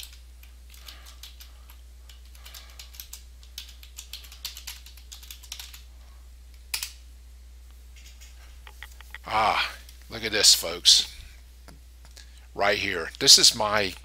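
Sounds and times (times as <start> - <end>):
computer keyboard typing: 0.0 - 5.8, 8.0 - 9.2.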